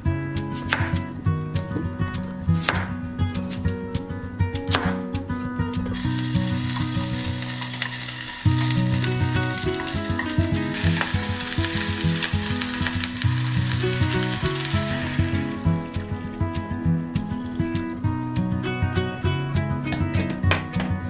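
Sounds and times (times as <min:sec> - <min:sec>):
soft background music: 0:00.0 - 0:21.0
vegetables sizzling in hot oil: 0:05.9 - 0:16.4.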